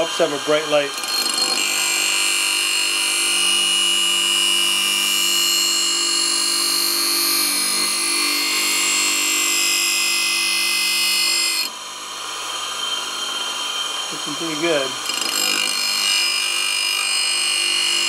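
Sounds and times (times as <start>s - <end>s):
bench grinder motor hum: 0.0s - 18.0s.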